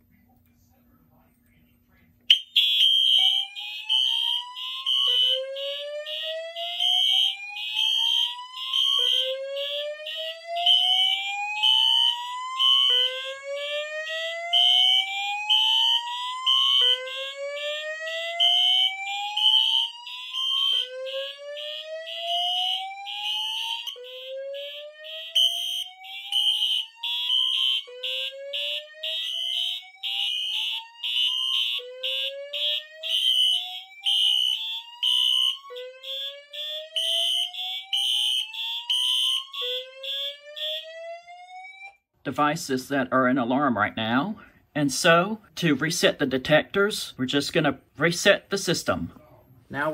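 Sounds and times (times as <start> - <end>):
pulsing high-pitched alarm horn: 2.3 - 41.8
rising whoop alarm: 2.6 - 42.0.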